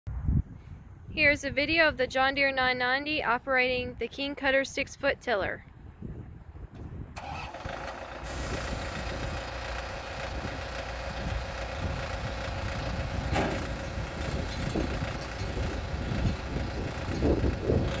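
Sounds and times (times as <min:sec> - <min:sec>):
tractor diesel engine running: 0:07.2 - 0:18.0.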